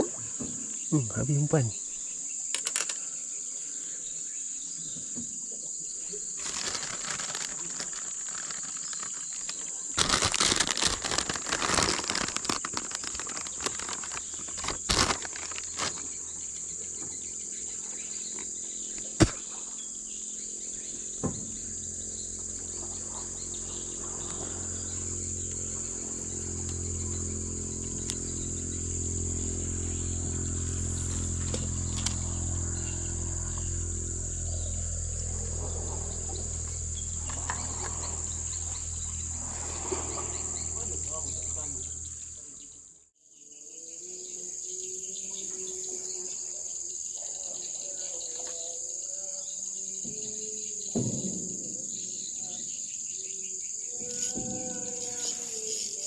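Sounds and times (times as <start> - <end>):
insects droning: 0.0 - 56.0
rustling and crinkling from handling: 6.2 - 16.2
low hum of several tones: 6.4 - 42.9.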